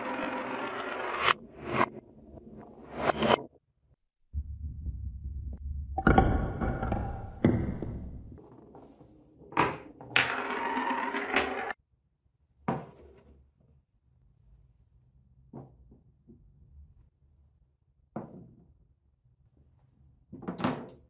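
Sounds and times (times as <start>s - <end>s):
marble rolling along channel: 0.0s - 1.4s, 9.8s - 11.8s.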